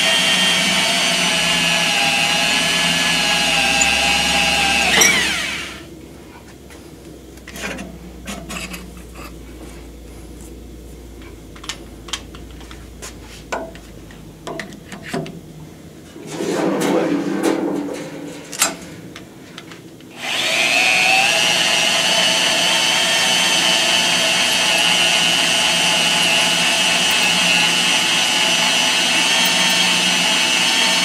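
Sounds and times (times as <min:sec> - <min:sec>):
electric drill whine: 0:00.0 - 0:05.9, 0:20.1 - 0:31.0.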